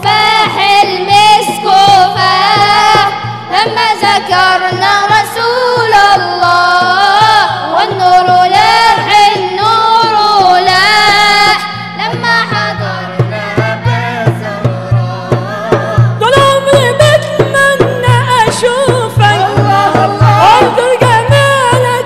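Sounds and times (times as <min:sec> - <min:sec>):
low drum beat: 0:12.0 - 0:22.0.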